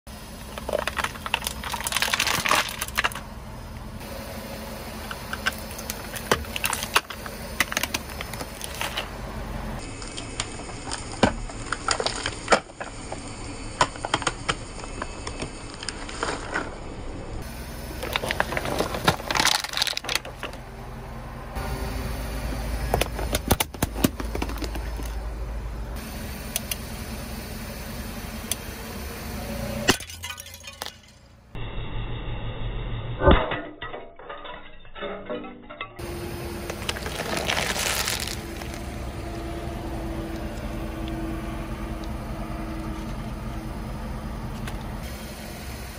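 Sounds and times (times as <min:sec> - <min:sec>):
objects cracking under tyres: 0:00.4 - 0:03.3, 0:05.0 - 0:09.2, 0:09.8 - 0:16.8, 0:18.0 - 0:20.7, 0:22.9 - 0:25.2, 0:33.6 - 0:39.5.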